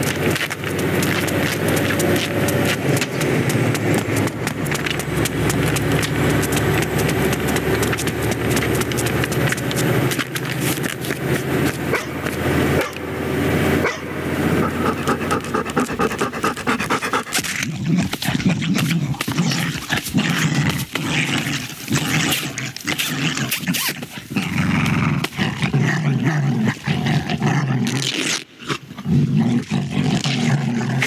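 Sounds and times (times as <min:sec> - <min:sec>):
dog panting: 0:00.0 - 0:11.2, 0:14.5 - 0:18.4
running footfalls: 0:00.0 - 0:13.0
truck engine and road noise: 0:00.0 - 0:17.6.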